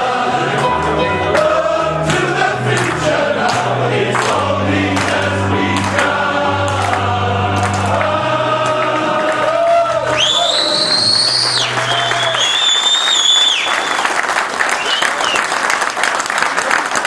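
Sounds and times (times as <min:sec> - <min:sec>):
male choir singing in parts: 0:00.0 - 0:10.2
shrill whistle: 0:10.1 - 0:15.5.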